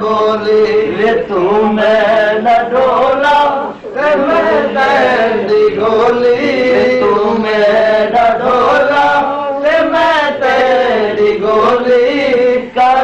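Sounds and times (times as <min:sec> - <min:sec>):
man singing chant-like: 0:00.0 - 0:13.0.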